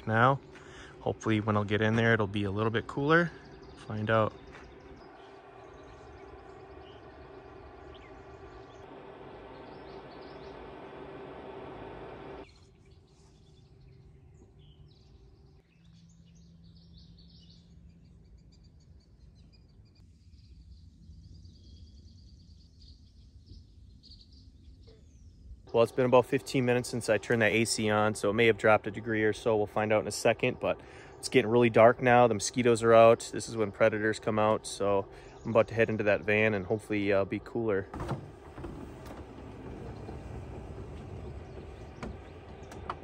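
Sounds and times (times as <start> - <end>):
air conditioner humming: 0.0 - 12.5, 25.7 - 43.0
high bird chirps: 2.7 - 11.2.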